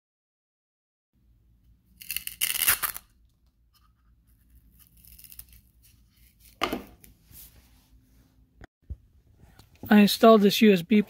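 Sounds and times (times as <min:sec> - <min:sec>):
velcro rasping: 0:02.0 - 0:03.2, 0:04.7 - 0:06.6.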